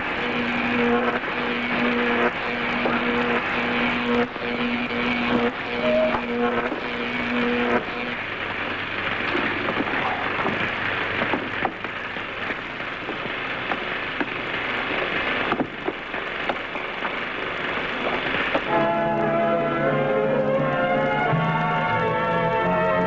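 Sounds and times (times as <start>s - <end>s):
steady rushing hiss: 0.0s - 23.0s
held tones: 0.8s - 7.8s.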